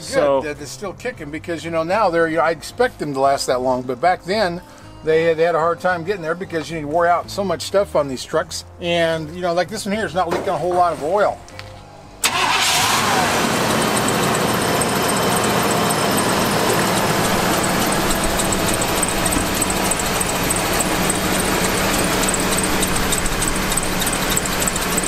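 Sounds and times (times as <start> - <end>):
engine idling: 12.2 - 25.0
high-pitched belt squeak: 15.1 - 25.0.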